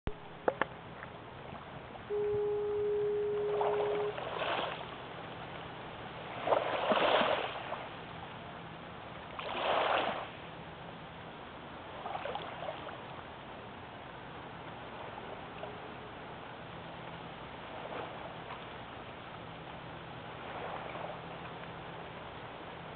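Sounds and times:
foghorn blast: 2.1 - 4.3.

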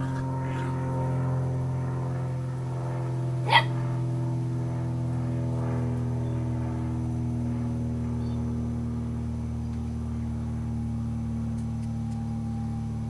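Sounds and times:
steady droning hum: 0.0 - 13.0
puppy yelping: 3.4 - 3.8.

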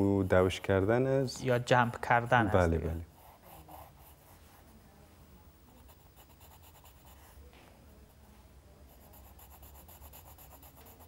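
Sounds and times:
pencil scratching on paper: 3.1 - 4.7, 5.7 - 7.4, 8.9 - 11.0.

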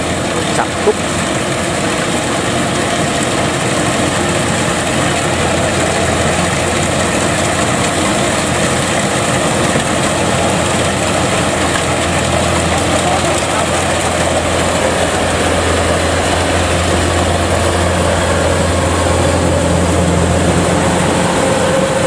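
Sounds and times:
combine harvester running: 0.0 - 22.0.

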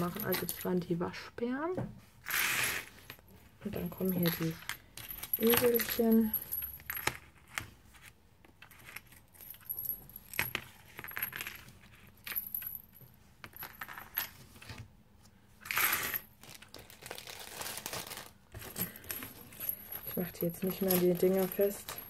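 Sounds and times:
keychains clinking and jingling: 4.0 - 7.0, 18.7 - 22.0.

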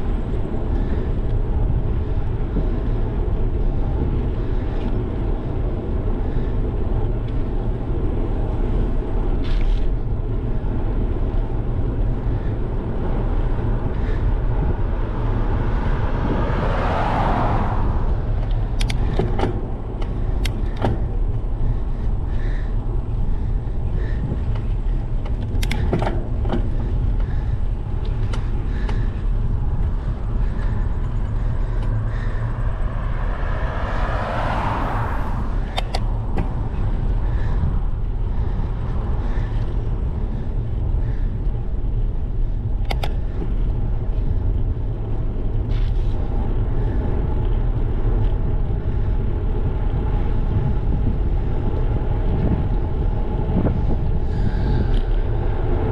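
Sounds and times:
bike clicks and rattles: 0.0 - 16.0, 18.2 - 32.8, 35.5 - 55.9
tyre noise on asphalt: 0.0 - 55.9
wind rushing over microphone: 0.0 - 55.9
rushing sound: 31.5 - 36.3.

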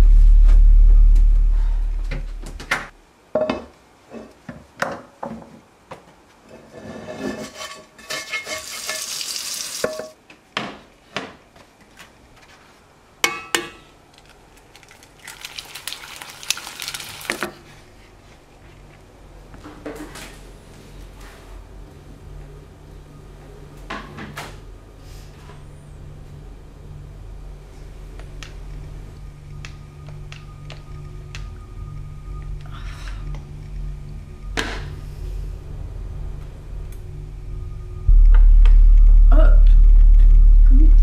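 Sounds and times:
low music drone: 0.0 - 3.0, 21.6 - 41.0
pans and utensils clinking: 7.0 - 10.2.

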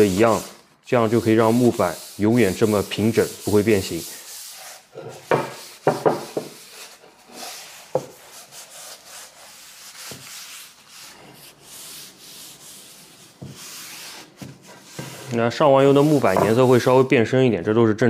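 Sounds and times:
paper towel rubbing wooden board: 0.0 - 17.1
board knocking: 5.2 - 6.6.

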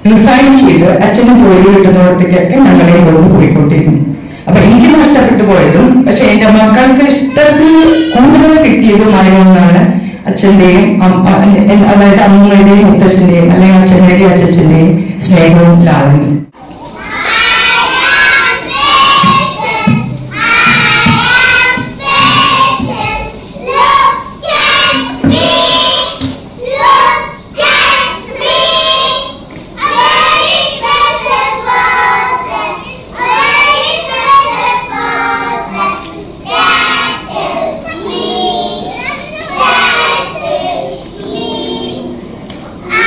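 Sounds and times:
children singing: 16.9 - 43.0.

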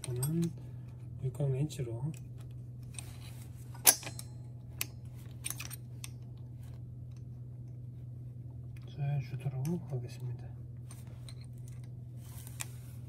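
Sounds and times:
metal clicks and clinks: 0.0 - 0.6
steady low hum: 0.0 - 13.0.

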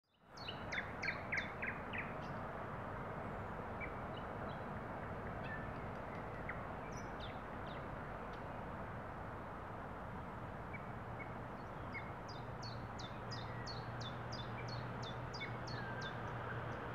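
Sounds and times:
nightingale singing: 0.1 - 2.4, 10.7 - 16.4.

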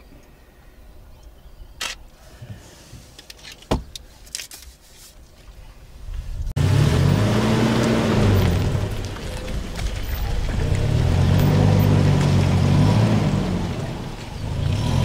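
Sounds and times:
road and wind noise: 0.0 - 15.0
sharp clicks: 1.8 - 2.0
vehicle engine starting and driving: 6.5 - 15.0.

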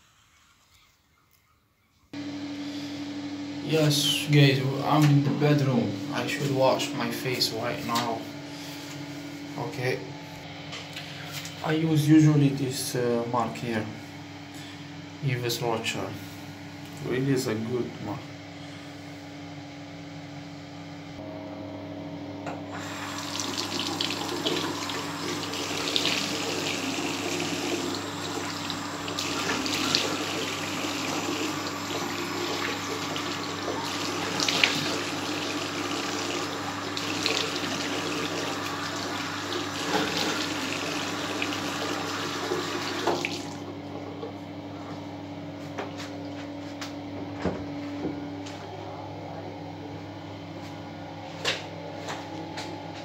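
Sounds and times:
steady low hum: 2.1 - 41.1
tap running into sink: 42.4 - 43.6.

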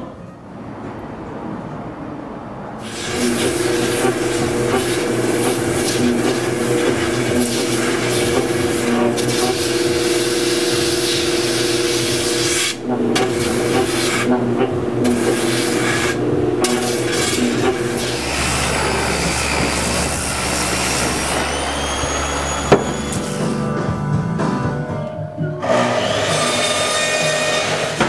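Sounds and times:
gritty sanding hiss on wood: 2.8 - 14.3, 15.0 - 22.2
sanding drum motor hum: 2.8 - 23.8.

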